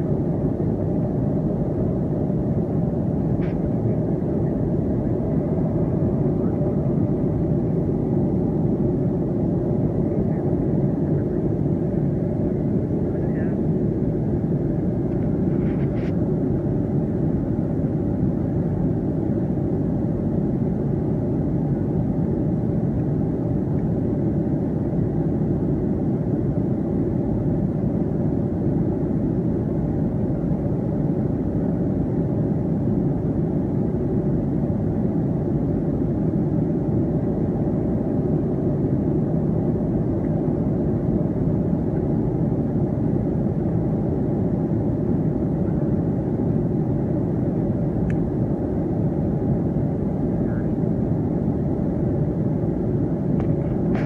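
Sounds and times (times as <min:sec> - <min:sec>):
airliner cabin engine drone: 0:00.0 - 0:54.0
faint click: 0:48.0 - 0:48.2.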